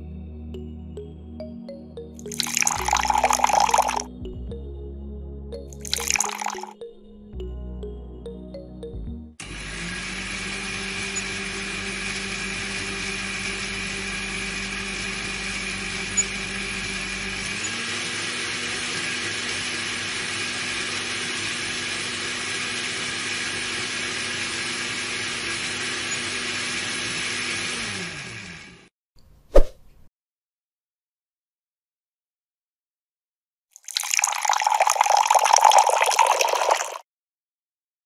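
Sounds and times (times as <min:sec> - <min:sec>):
small electric motor whirring: 0:09.4 - 0:28.9.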